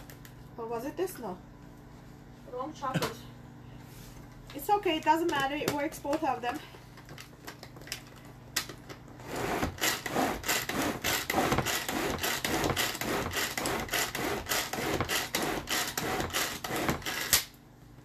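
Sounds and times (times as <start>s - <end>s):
pull-cord food chopper whirring: 9.2s - 17.5s.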